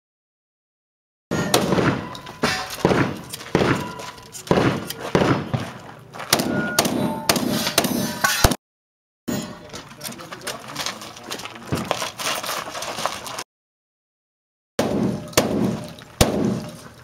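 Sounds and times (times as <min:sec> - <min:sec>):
rapid rifle gunshots echoing: 0:01.3 - 0:05.7, 0:14.8 - 0:16.8.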